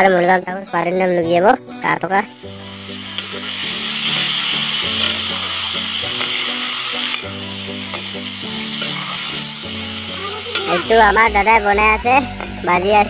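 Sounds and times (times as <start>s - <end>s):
food sizzling in a wok: 2.3s - 13.0s
ladle stirring food: 2.9s - 10.9s.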